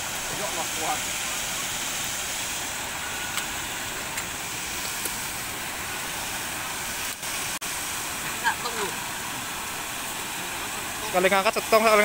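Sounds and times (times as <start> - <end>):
fast-flowing river water: 0.0 - 12.0.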